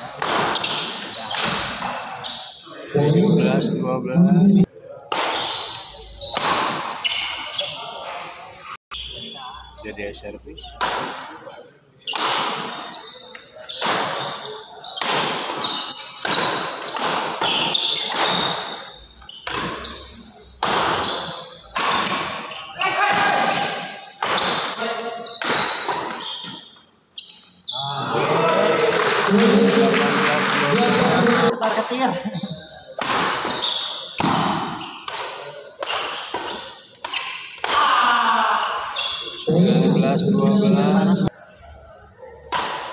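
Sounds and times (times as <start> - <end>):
shoe squeaks: 0.0 - 2.7, 5.4 - 8.0, 8.9 - 9.8, 11.4 - 27.9, 32.0 - 37.6, 38.6 - 39.5
badminton rackets hitting shuttlecock: 0.1 - 1.8, 5.1 - 7.4, 12.1 - 12.8, 13.7 - 18.8, 20.6 - 26.6, 33.0 - 38.0.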